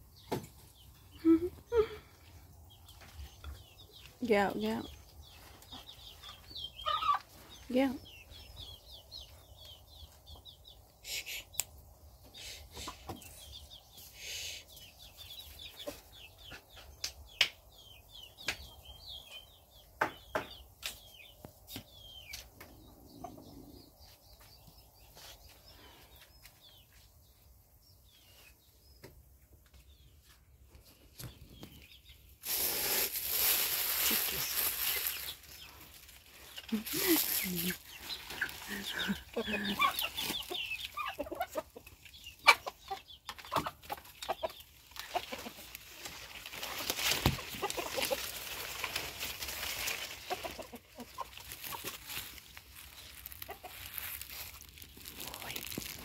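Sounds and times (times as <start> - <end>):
birds chirping: 0.0 - 56.0
chickens wing flapping: 45.1 - 52.4.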